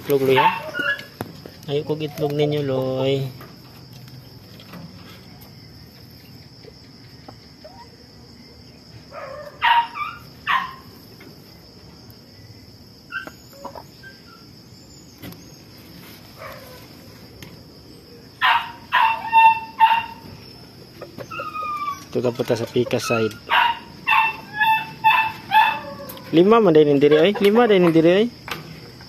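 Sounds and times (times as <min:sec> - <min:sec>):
crickets trilling: 0:00.0 - 0:29.0
chickens squawking: 0:00.1 - 0:02.2, 0:07.2 - 0:08.1, 0:09.2 - 0:11.1, 0:13.0 - 0:14.8, 0:18.2 - 0:28.2.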